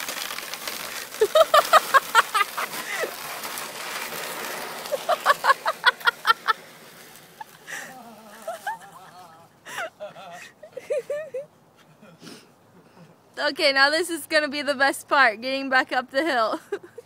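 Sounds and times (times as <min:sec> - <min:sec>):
high-pitched cackling laughter: 0:01.2 - 0:03.1, 0:04.8 - 0:06.6, 0:07.4 - 0:11.5.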